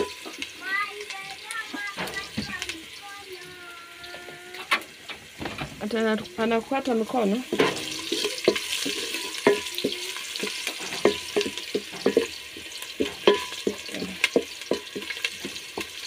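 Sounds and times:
onions sizzling: 0:00.0 - 0:16.0
wooden spoon scraping metal pot: 0:07.4 - 0:16.0.

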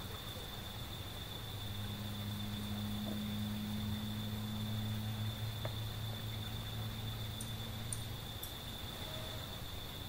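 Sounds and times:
insects trilling: 0:00.0 - 0:10.0
low steady hum: 0:00.0 - 0:10.0.

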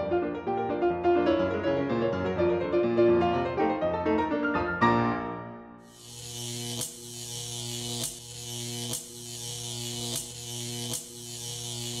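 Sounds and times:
small electric motor buzzing: 0:05.8 - 0:12.0.

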